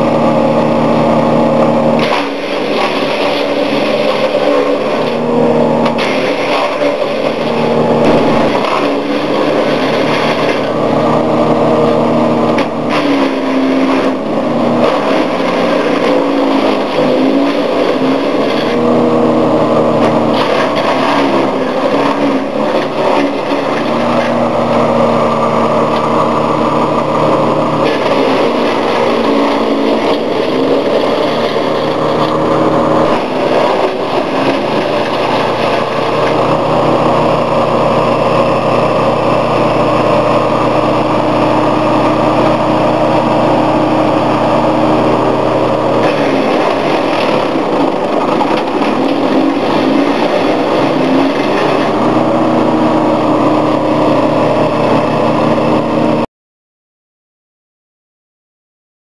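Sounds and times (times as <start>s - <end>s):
wood chipper engine running: 0.0s - 56.3s.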